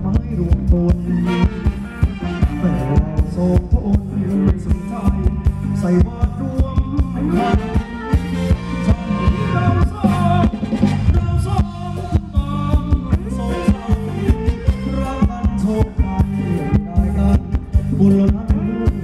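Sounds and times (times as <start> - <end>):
live band dance music: 0.0 - 19.0.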